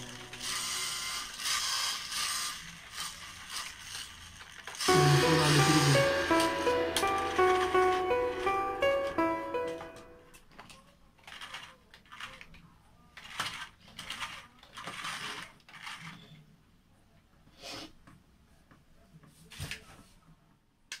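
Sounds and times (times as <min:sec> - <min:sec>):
plastic toy handling clicks and rattles: 0:00.0 - 0:04.9, 0:10.4 - 0:16.4.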